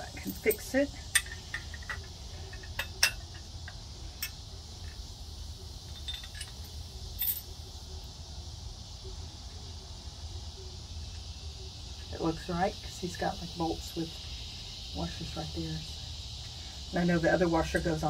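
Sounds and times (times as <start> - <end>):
crickets chirring: 0.0 - 18.0
metal parts clinking: 0.1 - 5.0, 5.9 - 7.5.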